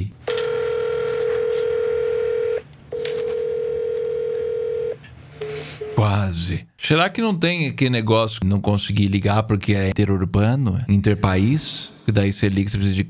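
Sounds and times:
phone ringback tone: 0.3s - 6.0s.

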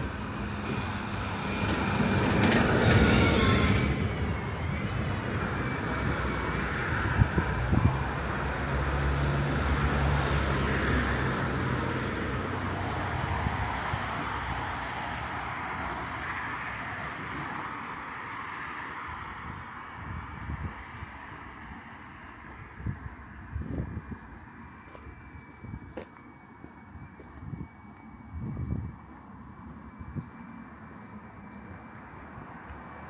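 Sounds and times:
vehicles passing on a street: 0.0s - 33.0s.

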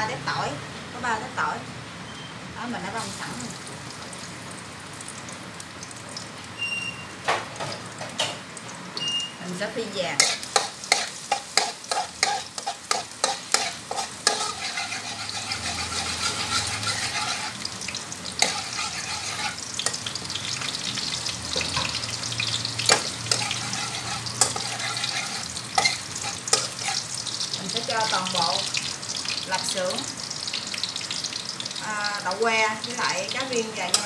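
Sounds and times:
garlic sizzling in hot oil: 2.6s - 34.0s
metal spatula scraping wok: 10.2s - 20.2s, 22.8s - 27.3s.

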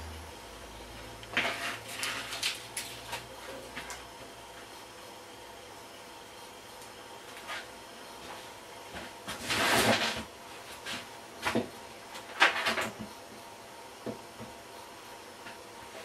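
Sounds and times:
scraping rustle on workbench: 1.3s - 2.6s, 7.3s - 11.1s.

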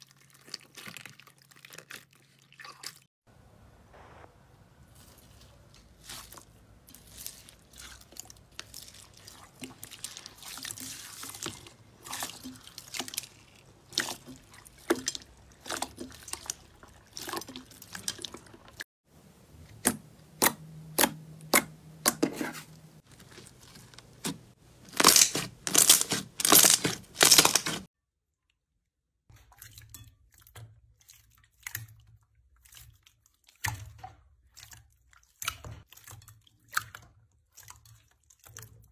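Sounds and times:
hand squelching gel beads: 0.0s - 3.1s, 4.9s - 18.9s, 19.6s - 27.9s
slime being kneaded: 19.6s - 27.9s.

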